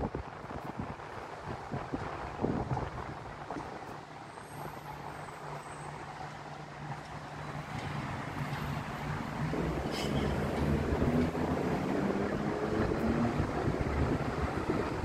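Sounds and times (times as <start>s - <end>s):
wind buffeting the microphone: 0.0s - 4.9s, 9.4s - 15.0s
road traffic: 0.0s - 15.0s
vehicle engine droning: 4.9s - 15.0s.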